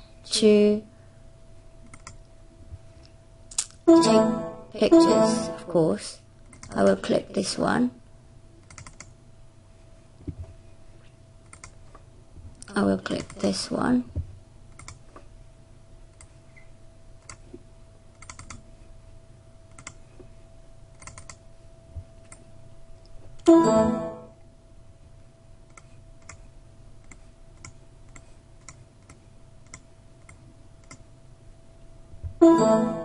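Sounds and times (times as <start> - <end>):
faint steady hum: 0.0 - 33.0
computer mouse clicking: 1.8 - 2.3, 6.4 - 6.8, 8.6 - 9.1, 11.4 - 11.8, 14.7 - 15.0, 17.2 - 17.4, 18.2 - 18.6, 19.7 - 20.0, 21.0 - 21.4, 25.7 - 26.4, 27.0 - 31.0
short ringing tone: 32.4 - 33.0.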